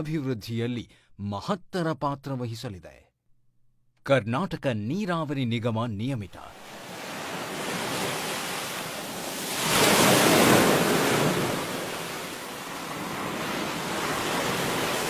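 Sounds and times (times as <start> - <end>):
water rushing from dam spillway: 6.7 - 15.0.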